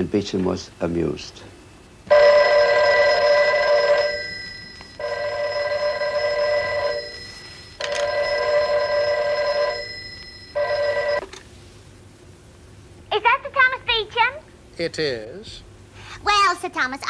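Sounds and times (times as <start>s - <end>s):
telephone bell ringing: 2.1s - 11.4s.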